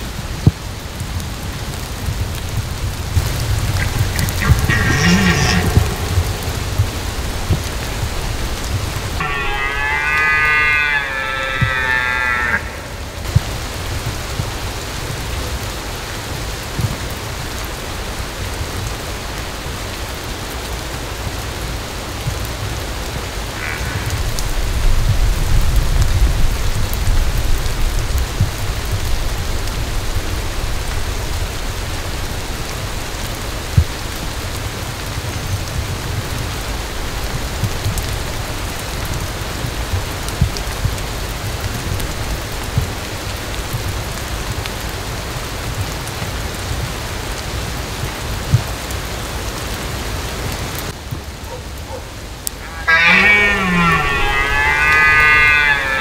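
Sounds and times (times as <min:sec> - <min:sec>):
steady rain falling: 0:00.0 - 0:56.0
low rumble: 0:01.9 - 0:15.2.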